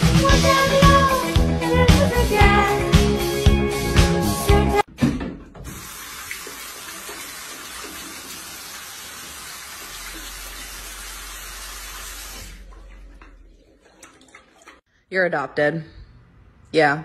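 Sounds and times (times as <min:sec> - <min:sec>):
tap water running into bowl: 0:05.7 - 0:14.8.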